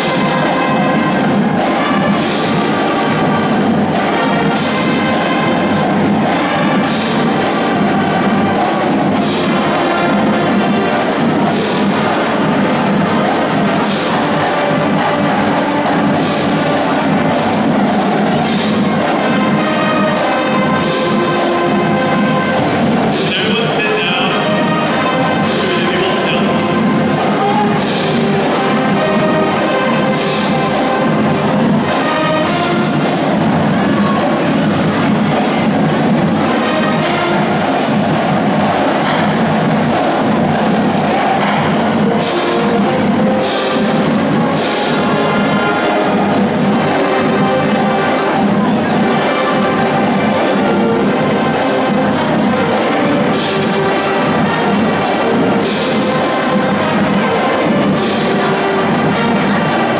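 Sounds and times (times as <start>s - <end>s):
bass drums beating: 0.0s - 59.9s
trumpets: 0.0s - 59.9s
sousaphones: 21.2s - 28.7s.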